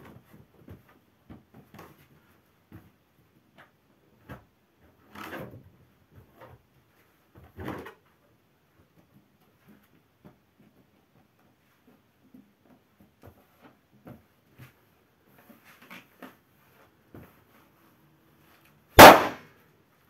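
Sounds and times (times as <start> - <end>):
sharp knock: 19.0 - 19.4.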